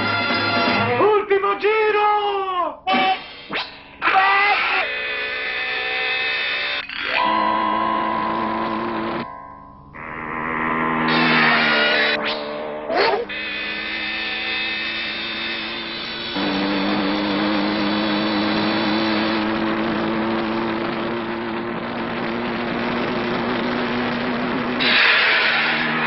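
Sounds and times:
cartoon motorbike engine buzzing: 4.8 - 26.0.

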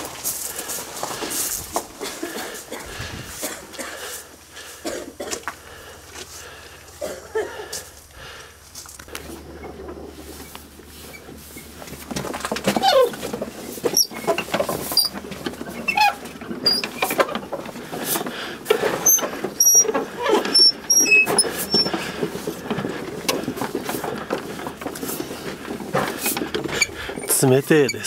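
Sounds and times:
prayer wheels squeaking and creaking: 8.7 - 28.0.

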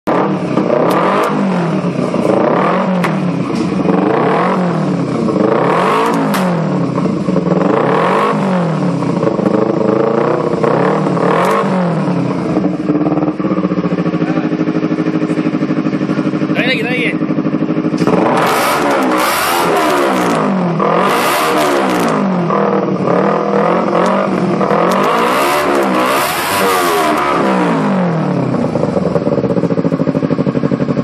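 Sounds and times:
motorcycle engine revving: 0.0 - 31.0
exhaust cracks: 0.1 - 31.0
motorcycle engine idling: 0.3 - 18.4, 26.8 - 31.0.

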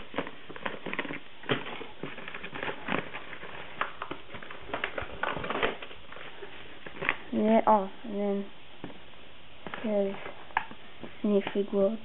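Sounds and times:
paper mailer crinkling: 0.0 - 7.3
bubble wrap crackles: 0.0 - 7.6.

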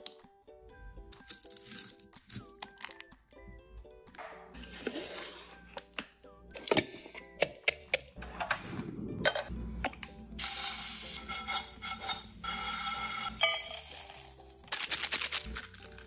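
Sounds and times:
dry noodles crunching: 14.7 - 16.0.

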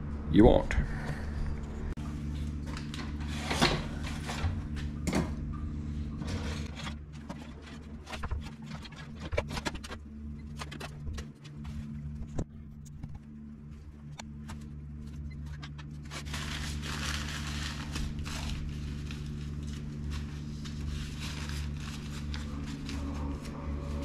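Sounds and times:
steady low hum: 0.0 - 24.0
paper towel rustling: 14.5 - 24.0.

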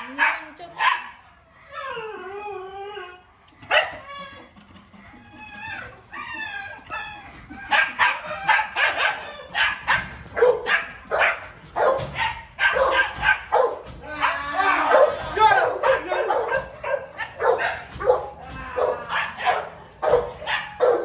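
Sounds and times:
dog yapping barks: 0.0 - 1.1, 3.6 - 4.0, 7.7 - 21.0
dog whining: 1.2 - 10.8.

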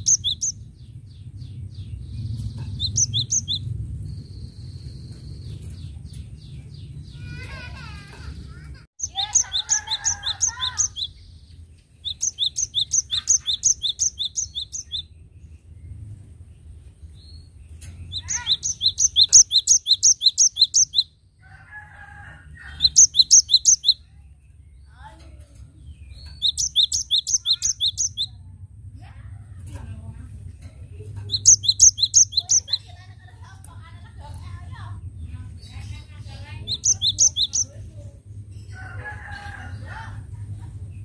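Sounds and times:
soft low bird chattering: 12.0 - 15.0, 18.0 - 21.1, 25.6 - 28.4, 29.6 - 34.6, 36.6 - 37.9.

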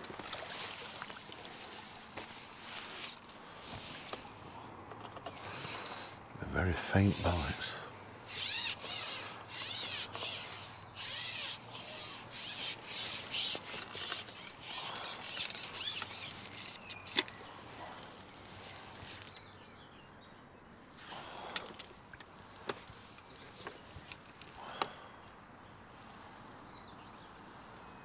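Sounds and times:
rubbing or scraping strokes: 6.7 - 7.7, 8.3 - 16.8.

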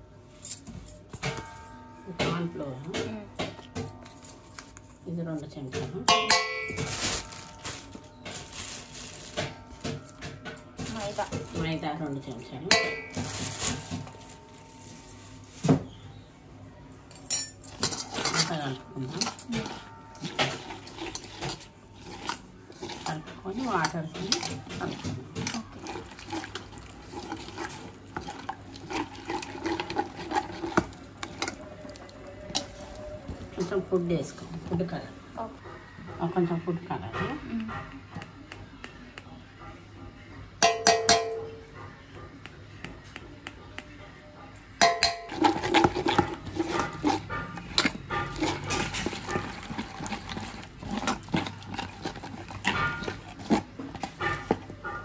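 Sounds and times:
hand mixing wet batter: 4.7 - 15.5, 17.7 - 35.6, 45.0 - 55.0.

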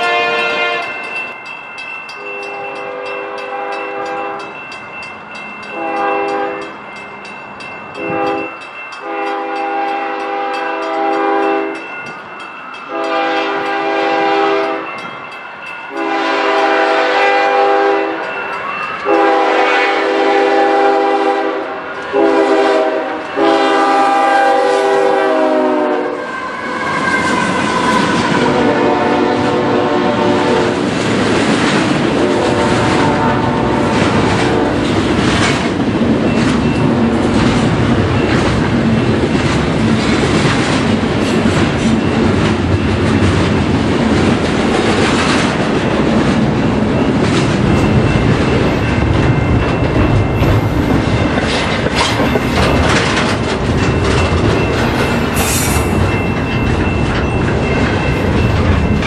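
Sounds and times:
locomotive air horn blasts: 0.0 - 1.0, 5.8 - 6.6, 8.0 - 11.8, 12.9 - 14.9, 16.0 - 18.2, 19.0 - 30.7, 32.2 - 34.8
train wheels rumbling and clacking: 0.0 - 59.0.

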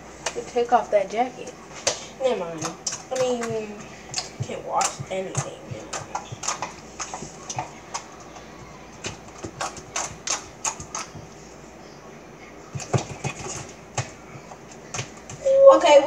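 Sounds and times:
slime squelching: 1.6 - 11.7.

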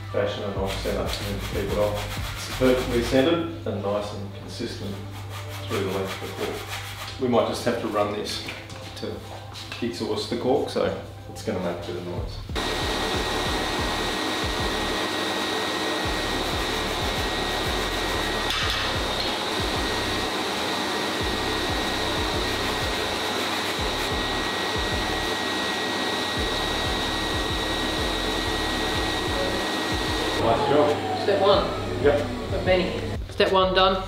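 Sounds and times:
file rasping cork: 1.1 - 3.0, 5.0 - 7.2
vacuum dust extractor whine: 12.6 - 33.2.

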